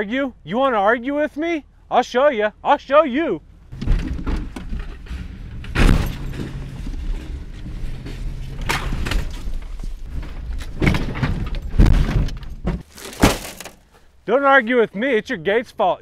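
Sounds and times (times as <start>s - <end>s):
loud thuds and metal crunches: 3.7s - 14.0s.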